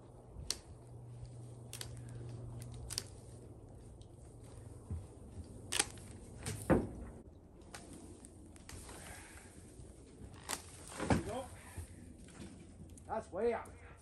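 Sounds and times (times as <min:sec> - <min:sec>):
faint low hum: 0:00.0 - 0:14.0
pole pruner clicks and snaps: 0:00.4 - 0:03.4, 0:05.7 - 0:06.6, 0:10.4 - 0:10.7.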